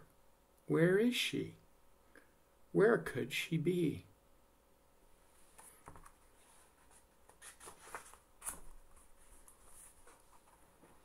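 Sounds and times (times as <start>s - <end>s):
book pages turning: 5.5s - 10.7s.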